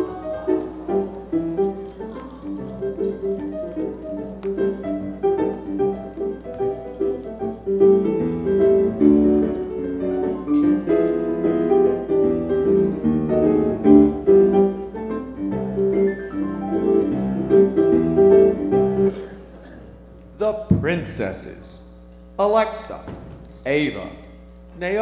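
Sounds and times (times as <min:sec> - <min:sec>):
piano music: 0:00.0 - 0:19.5.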